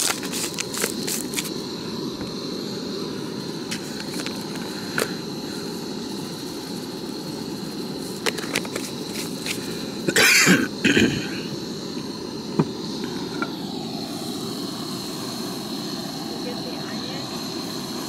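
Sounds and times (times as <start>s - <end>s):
steady background hiss: 0.0s - 18.0s
person coughing: 10.1s - 11.5s.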